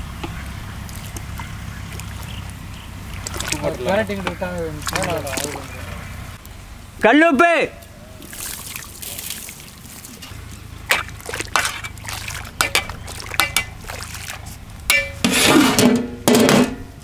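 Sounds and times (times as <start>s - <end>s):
water sloshing in a pot: 0.2s - 6.3s, 8.2s - 15.8s
metal lid scraping and clanking: 14.9s - 16.9s.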